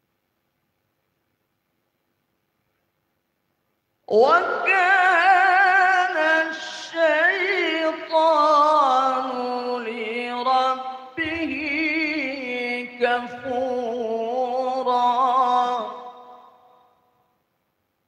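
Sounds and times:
man chanting into a microphone: 4.1s - 16.8s.

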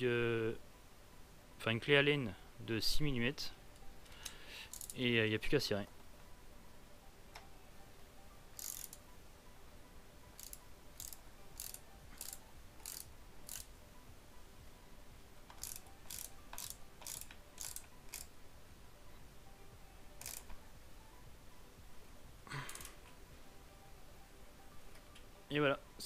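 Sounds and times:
hand ratchet clicking: 4.0s - 5.0s, 8.6s - 9.0s, 10.4s - 13.7s, 15.5s - 18.3s, 20.2s - 20.6s, 22.7s - 23.0s.

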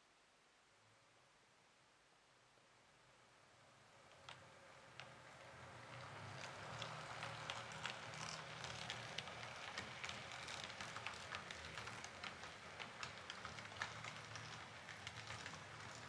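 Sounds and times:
model train motor hum: 5.6s - 16.0s
wheels clicking over rail joints: 5.8s - 16.0s.

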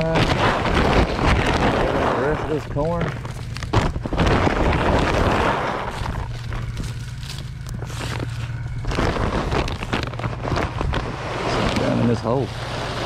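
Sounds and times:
bag crinkling and rustling: 0.0s - 12.1s
plastic bag ripping open: 7.9s - 12.0s.

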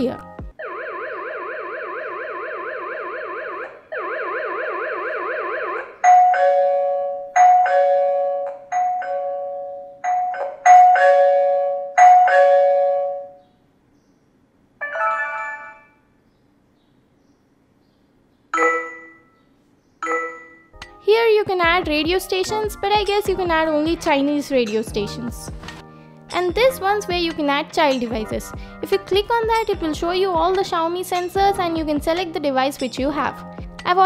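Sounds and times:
warbling alarm siren: 0.6s - 8.5s
ding-dong doorbell chime: 6.0s - 13.4s, 18.6s - 19.4s, 20.0s - 20.8s.

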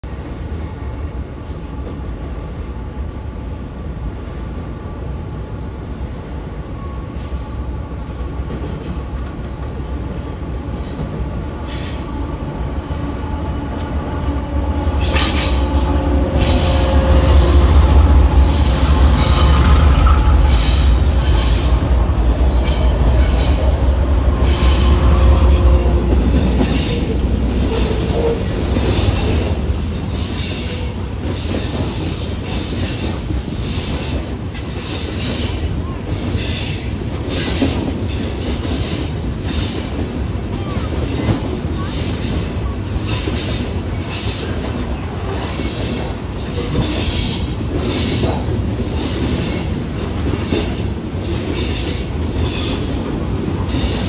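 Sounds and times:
diesel locomotive engines rumbling: 0.0s - 54.0s
train wheels squealing: 6.7s - 7.6s, 10.7s - 12.2s, 15.0s - 39.9s, 40.6s - 54.0s
train cars clicking over rails: 8.2s - 12.1s, 14.9s - 54.0s.

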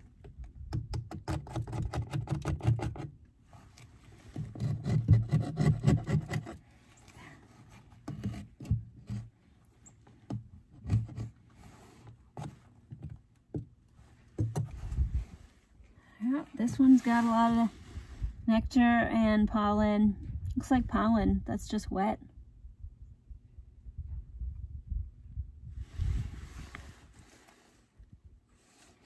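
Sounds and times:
metal tool scraping wood: 1.2s - 9.5s, 10.7s - 12.6s.

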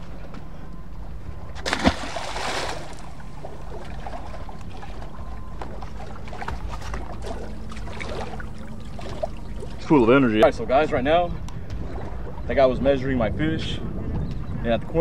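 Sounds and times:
fish splashing into water: 1.6s - 4.4s.

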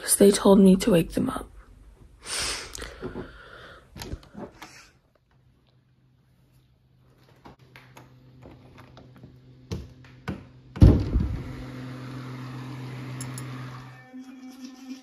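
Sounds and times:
heavy door thump: 10.8s - 11.4s.

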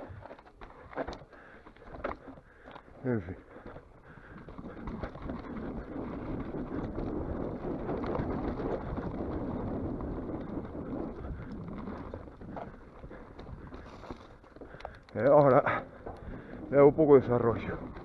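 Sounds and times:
bike rattles and clicks: 0.0s - 18.0s
bike tyres on dirt trail: 0.0s - 18.0s
wind on microphone: 4.2s - 14.0s.

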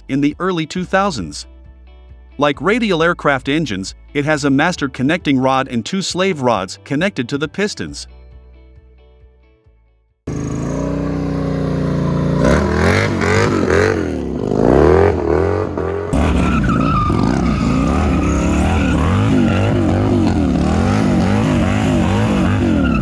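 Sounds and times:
motorcycle engine revving hard: 10.3s - 23.0s
tyre spinning in burnout: 12.4s - 23.0s.

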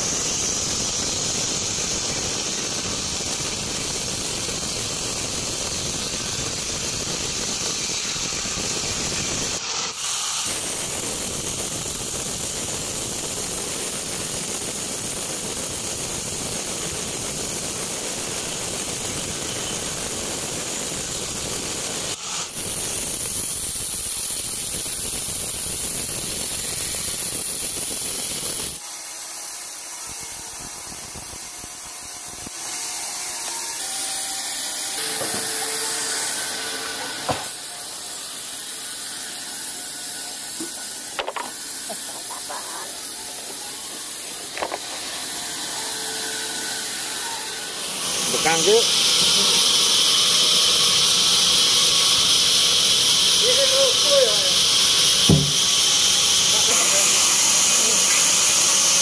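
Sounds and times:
band saw blade sawing log: 32.5s - 38.8s, 40.2s - 59.0s.

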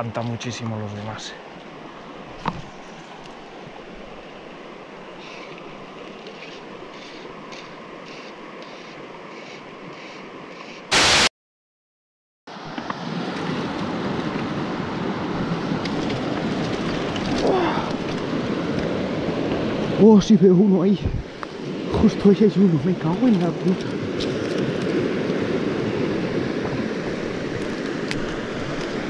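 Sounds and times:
rushing water: 0.0s - 11.3s, 12.5s - 29.0s
wind on microphone: 21.0s - 22.0s, 23.6s - 29.0s.

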